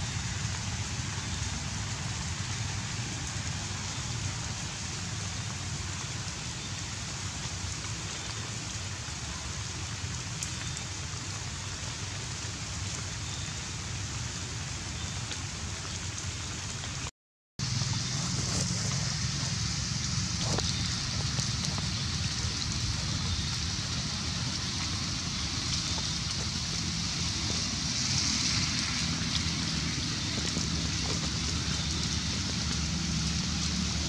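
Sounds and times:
steady hiss: 17.6s - 34.0s.

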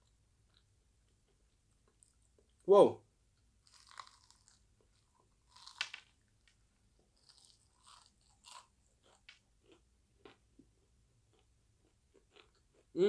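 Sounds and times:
chewing crispy fried chicken: 3.6s - 6.1s, 7.0s - 13.0s.

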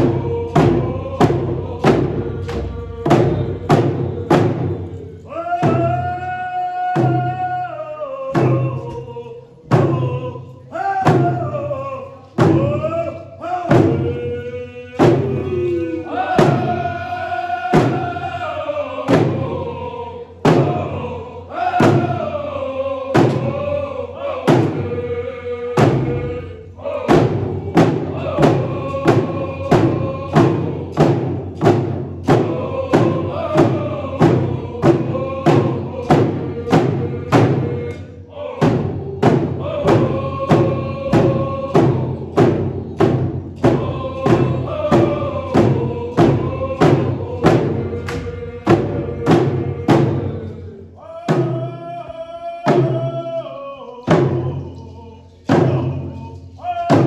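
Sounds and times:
hand drums beating: 0.0s - 5.0s, 27.1s - 50.5s, 55.4s - 57.0s
group of voices singing: 0.0s - 57.0s.

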